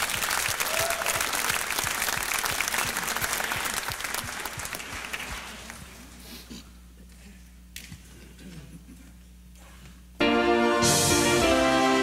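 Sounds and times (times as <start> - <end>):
congregation applauding: 0.0 - 6.1.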